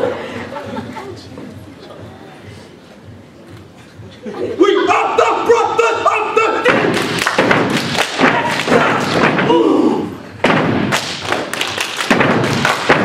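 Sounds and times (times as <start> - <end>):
feet stomping and hands striking: 6.6 - 9.7, 10.4 - 13.0.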